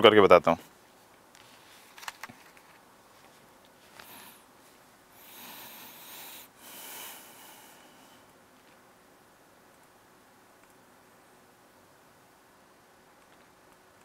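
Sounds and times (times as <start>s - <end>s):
man breathing softly: 3.8s - 4.5s, 5.1s - 8.4s.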